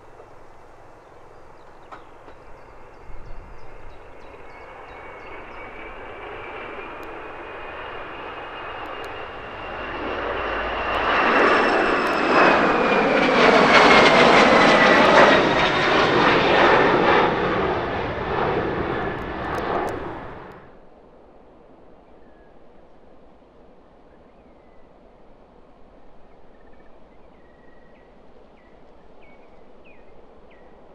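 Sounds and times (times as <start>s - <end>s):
jet taking off and passing: 0.0s - 20.8s.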